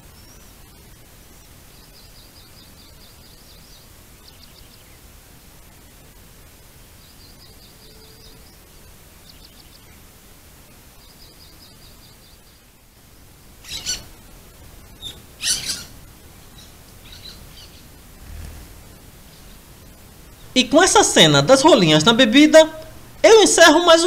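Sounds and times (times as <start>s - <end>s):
small birds trilling: 0.0s - 5.1s, 6.8s - 24.0s
flurries of wingbeats: 18.0s - 19.2s.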